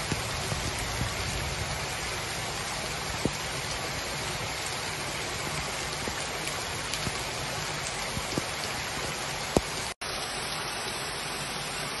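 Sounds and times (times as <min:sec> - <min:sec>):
heavy rain on wet street: 0:00.0 - 0:12.0.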